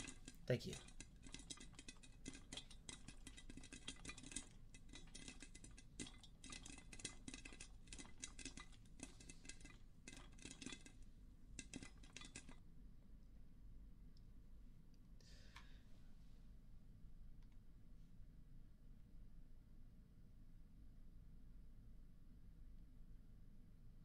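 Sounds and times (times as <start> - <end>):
popcorn popping: 0.0 - 12.6.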